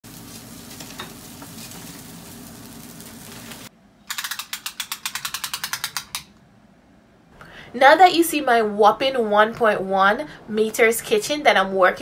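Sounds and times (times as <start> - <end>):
steady hiss: 0.0 - 3.7.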